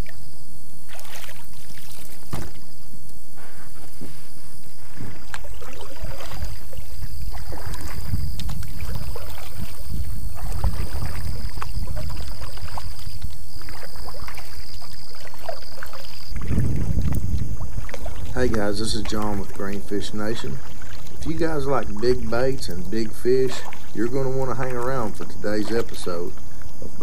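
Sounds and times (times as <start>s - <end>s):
steady high-pitched whine: 0.0s - 23.8s
knocks and scrapes of plastic kayak: 0.9s - 14.5s
low rumble: 16.4s - 18.3s.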